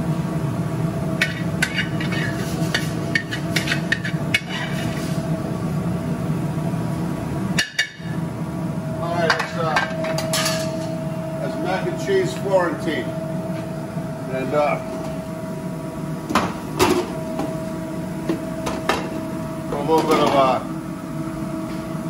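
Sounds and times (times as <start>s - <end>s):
metal utensil scraping a skillet: 1.6s - 5.2s.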